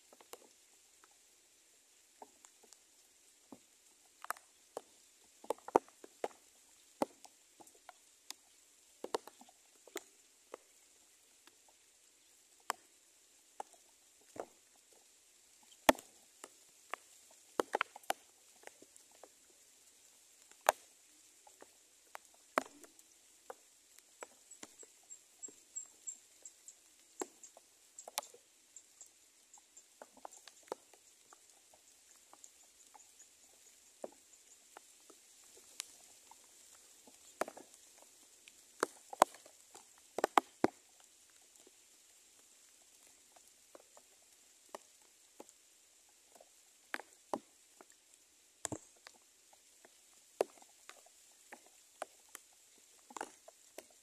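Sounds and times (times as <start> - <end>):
faint high chirps: 24.2 - 31.2
light taps and rustles: 30.0 - 41.0.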